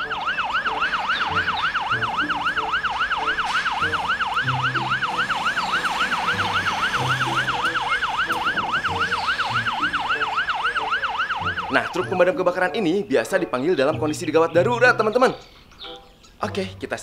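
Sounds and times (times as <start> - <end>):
fire engine siren yelping: 0.0 - 12.8.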